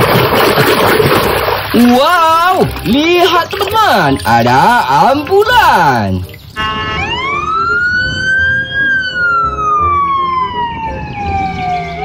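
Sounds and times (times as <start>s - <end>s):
ambulance siren wailing: 6.6s - 12.0s.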